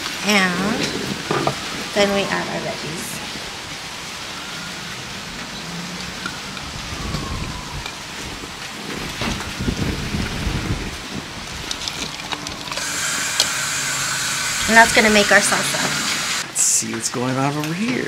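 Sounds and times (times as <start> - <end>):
pot hissing on burner: 12.8 - 16.4.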